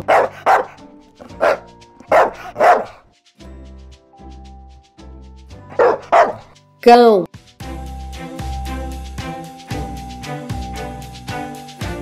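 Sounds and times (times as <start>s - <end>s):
dog barking: 0.0s - 3.0s, 5.7s - 6.5s
background music: 0.0s - 12.0s.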